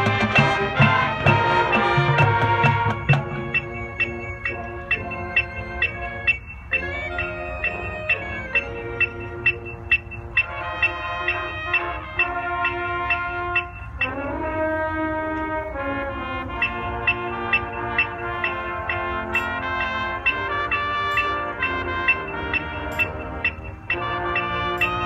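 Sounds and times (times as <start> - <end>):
brass band playing chords: 0.0 - 25.0
metronome clicking: 1.7 - 14.4, 16.6 - 25.0.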